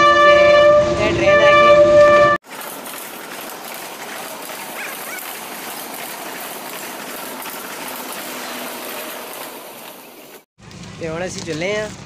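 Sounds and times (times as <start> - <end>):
train wheels rushing on rails: 0.0 - 12.0.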